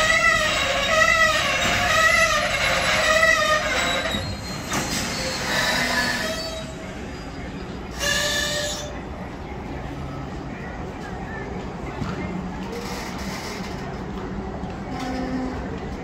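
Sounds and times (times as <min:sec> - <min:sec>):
train brakes squealing: 0:00.0 - 0:09.1.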